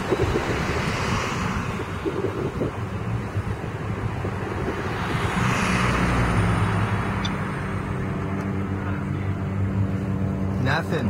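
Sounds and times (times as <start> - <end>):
vehicle passing on wet pavement: 0.0 - 8.0.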